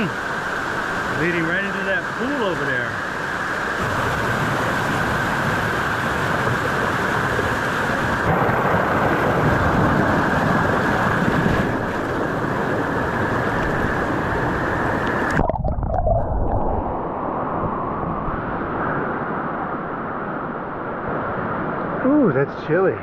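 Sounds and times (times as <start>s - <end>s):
creek water rushing over rocks: 0.0s - 16.9s
muffled underwater rush: 0.0s - 23.0s.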